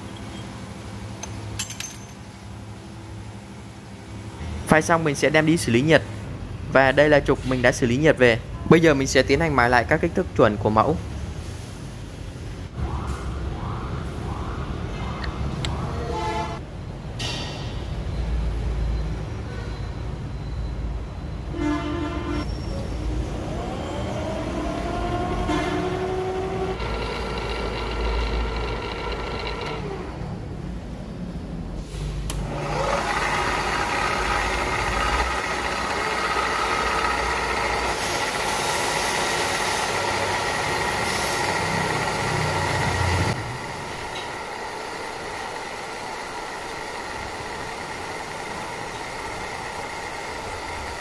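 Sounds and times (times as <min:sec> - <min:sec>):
wheel grinding steel: 0:24.1 - 0:30.3, 0:32.3 - 0:51.0
grinder whine: 0:26.2 - 0:30.3, 0:32.3 - 0:51.0.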